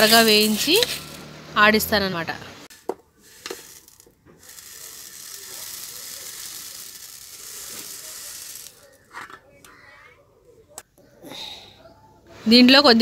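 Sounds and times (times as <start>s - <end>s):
dry grains pouring: 2.7s - 9.0s.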